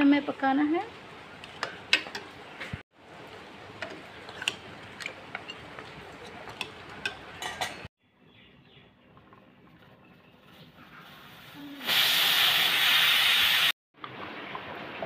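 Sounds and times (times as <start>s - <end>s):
spoon scraping a metal pot: 3.8s - 7.9s.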